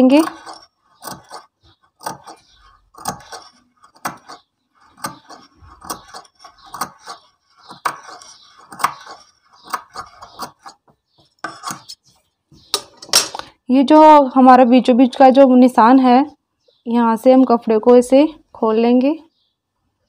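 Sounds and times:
scissors snipping fabric: 0:00.0 - 0:02.4.

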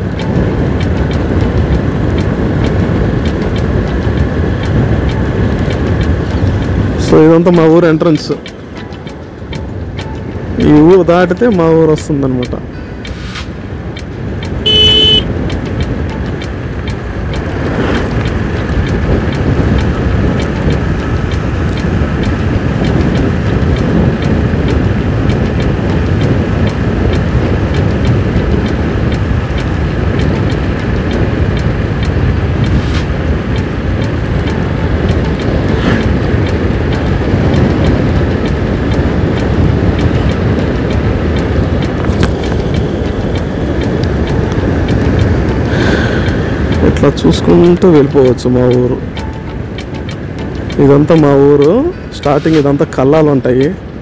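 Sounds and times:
motorcycle engine: 0:00.0 - 0:11.5, 0:12.3 - 0:53.2
wind rushing over microphone: 0:00.0 - 0:54.0
horn beep: 0:14.6 - 0:15.3.

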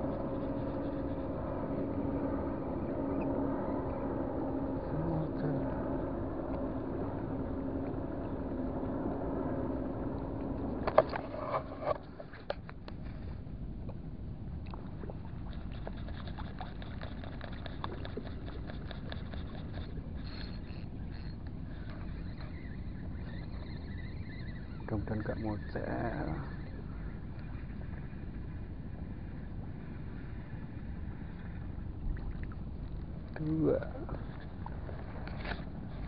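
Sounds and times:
fishing reel ticking: 0:00.0 - 0:04.8, 0:15.5 - 0:27.7
boat engine humming: 0:00.0 - 0:36.0.

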